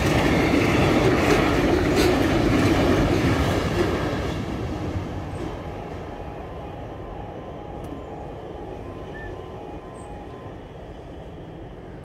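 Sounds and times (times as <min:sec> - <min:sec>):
train rumble: 0:00.0 - 0:12.0
level crossing alarm pips: 0:05.8 - 0:11.2.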